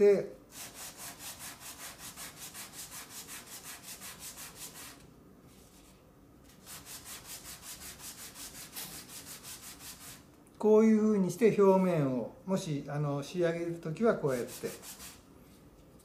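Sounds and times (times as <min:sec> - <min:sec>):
sandpaper rubbing on wood: 0:00.5 - 0:05.0, 0:06.6 - 0:10.2, 0:14.2 - 0:15.2.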